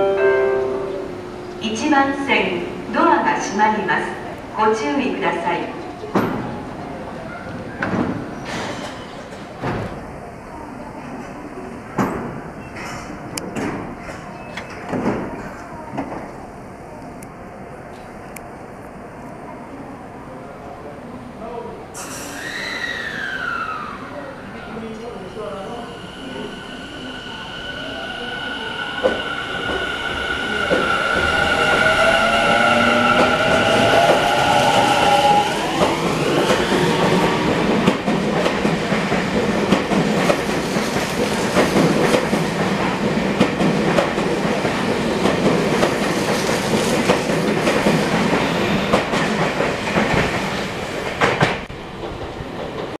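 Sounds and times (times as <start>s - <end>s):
train cars rumbling: 22.2s - 53.0s.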